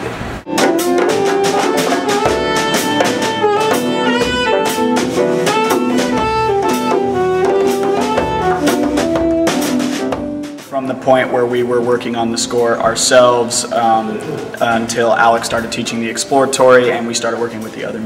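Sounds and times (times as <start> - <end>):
saxophone melody: 0.5 - 10.8
djembe hand drum strokes: 0.5 - 18.0
upright bass: 0.5 - 18.0.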